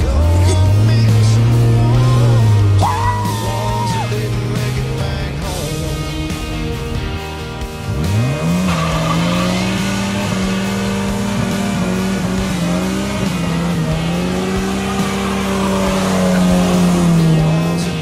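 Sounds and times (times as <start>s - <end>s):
engine revving high: 0.0s - 18.0s
tyres squealing: 0.3s - 4.3s, 8.6s - 18.0s.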